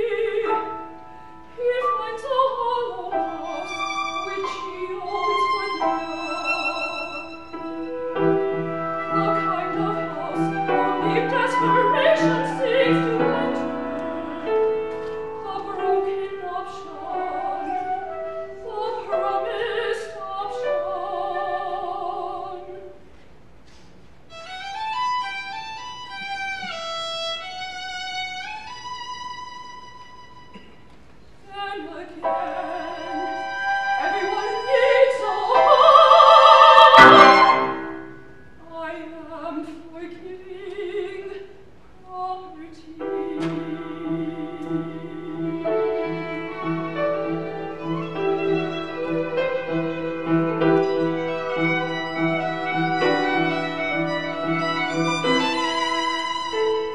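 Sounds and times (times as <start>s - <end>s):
violin: 0.0s - 22.9s, 24.3s - 30.6s, 31.6s - 38.2s, 42.3s - 56.9s
soprano singing: 0.0s - 23.0s, 31.4s - 56.9s
piano: 0.0s - 30.8s, 31.4s - 56.9s
flute: 3.5s - 14.8s, 17.0s - 19.4s, 32.3s - 38.0s.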